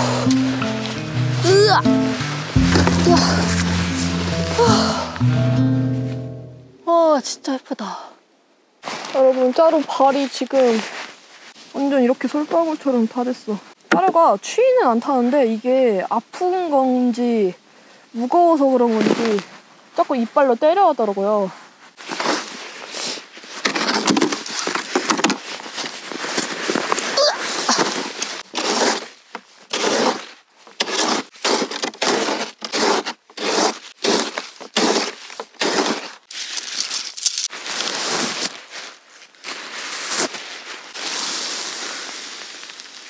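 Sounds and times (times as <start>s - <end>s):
sled scraping packed snow: 8.8s - 13.0s, 25.5s - 36.2s, 37.8s - 43.0s
rustle: 8.8s - 13.8s, 14.7s - 43.0s.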